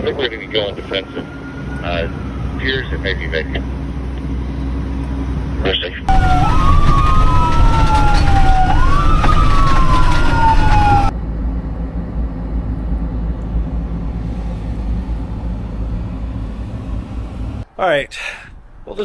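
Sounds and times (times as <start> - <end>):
fire engine sirens wailing: 0.0 - 4.0, 6.0 - 11.2
steady low rumble: 0.0 - 19.0.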